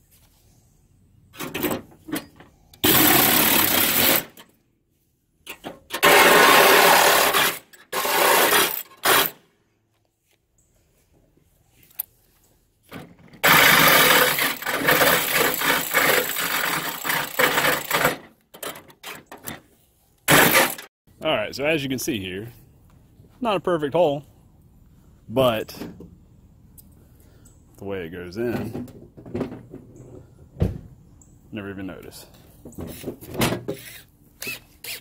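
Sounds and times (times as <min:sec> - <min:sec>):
reciprocating saw cutting sheet metal: 0:06.0 - 0:09.4.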